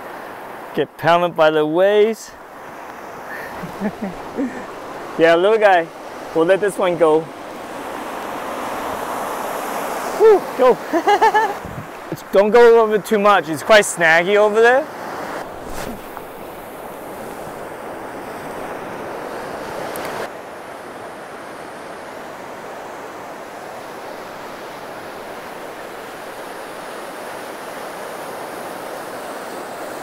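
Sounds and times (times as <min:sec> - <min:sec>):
surf washing through shallow water: 0:00.0 - 0:00.8, 0:01.8 - 0:30.0.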